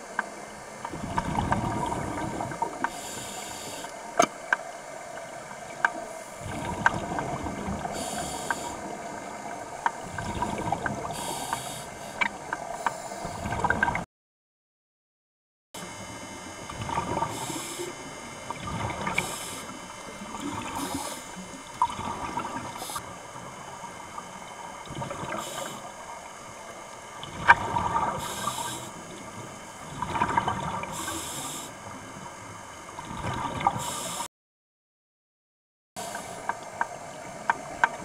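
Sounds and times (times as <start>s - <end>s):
scuba regulator breathing bubbles: 6.3s - 9.2s, 10.0s - 13.8s, 18.6s - 19.8s, 20.4s - 23.0s, 27.4s - 29.0s.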